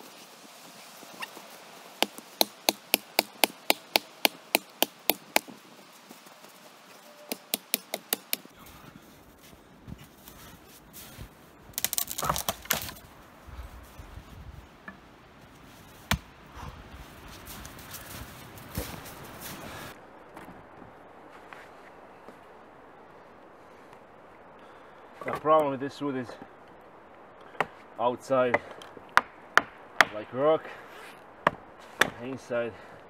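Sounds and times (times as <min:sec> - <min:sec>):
axe chopping a tree: 0:02.0 - 0:05.5, 0:07.3 - 0:08.5, 0:11.8 - 0:13.0, 0:16.1 - 0:16.3
axe chopping tree trunk: 0:02.0 - 0:05.5, 0:07.3 - 0:08.5, 0:11.8 - 0:13.0, 0:16.1 - 0:16.3
wood cracking and rustling: 0:11.7 - 0:13.1.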